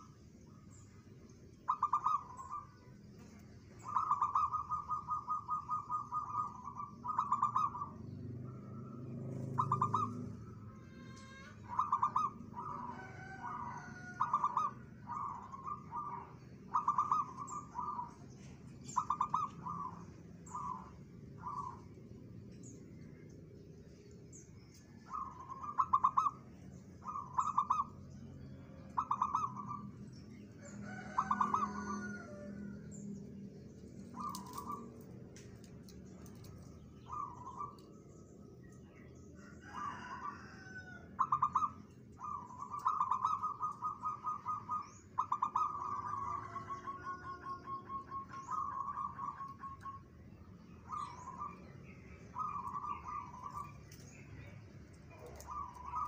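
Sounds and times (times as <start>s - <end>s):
dove trilling coos: 1.6s - 23.2s, 24.8s - 33.0s, 33.7s - 56.0s.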